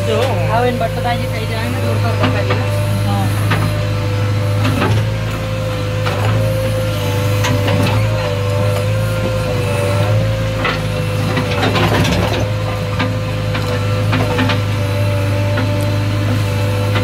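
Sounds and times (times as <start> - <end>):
diesel engine under load: 0.0 - 17.0
hydraulic whine: 0.0 - 17.0
knocks and rattles of digger arm: 4.6 - 17.0.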